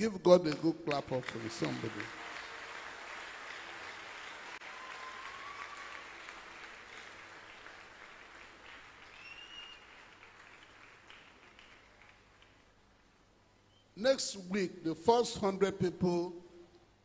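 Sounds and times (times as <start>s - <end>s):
congregation clapping: 0.0s - 13.0s.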